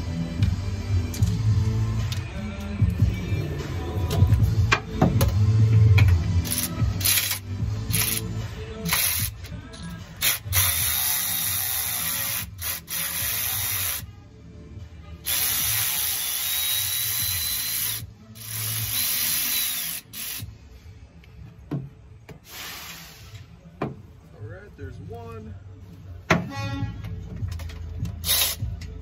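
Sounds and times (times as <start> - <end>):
electric ratchet spinning: 6.4 - 8.3, 10.2 - 14.0, 15.2 - 20.5, 28.2 - 28.7.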